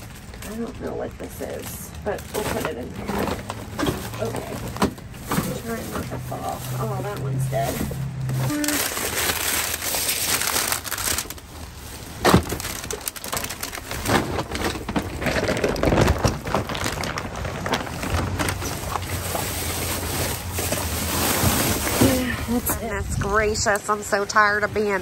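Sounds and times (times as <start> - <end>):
plastic bags rustling: 0.0 - 25.0.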